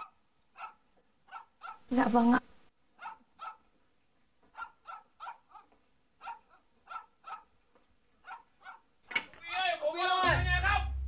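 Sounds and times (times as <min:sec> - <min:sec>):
dog barking faintly: 0:00.0 - 0:02.0, 0:03.0 - 0:03.7, 0:04.5 - 0:07.6, 0:08.2 - 0:08.9.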